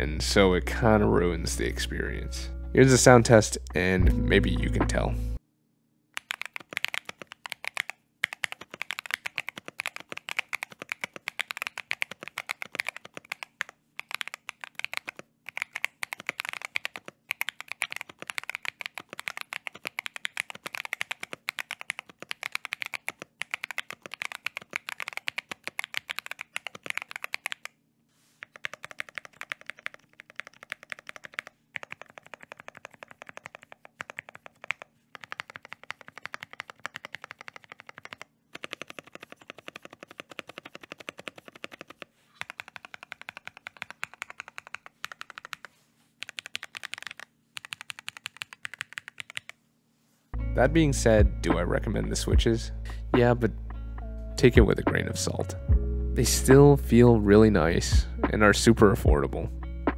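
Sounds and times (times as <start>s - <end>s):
fast typing on mechanical keyboard: 6.2s - 27.8s, 28.4s - 49.6s.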